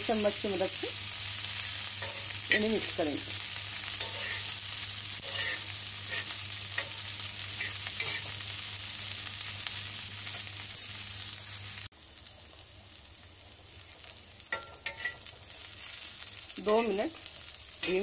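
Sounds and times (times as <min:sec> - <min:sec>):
onions sizzling in oil: 0:00.0 - 0:18.0
steel spoon scraping a pan: 0:01.5 - 0:03.0, 0:03.8 - 0:04.6, 0:05.2 - 0:08.4, 0:14.5 - 0:15.3.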